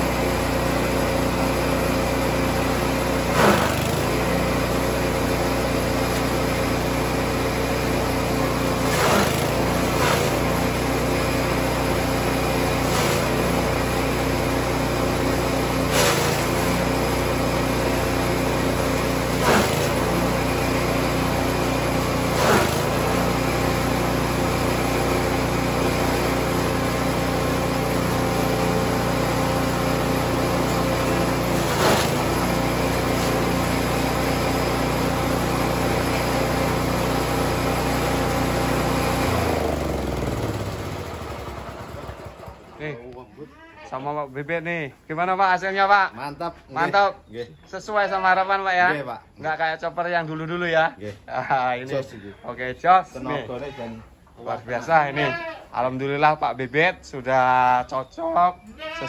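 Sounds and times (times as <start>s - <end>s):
chaff cutter chopping grass: 0.0s - 42.4s
small engine running: 0.0s - 43.0s.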